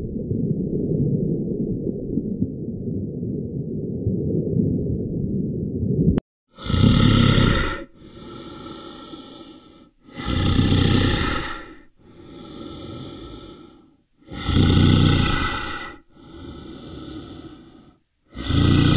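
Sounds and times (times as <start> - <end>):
breathy rasp: 6.6 - 18.9
polar bear growling: 6.6 - 18.9.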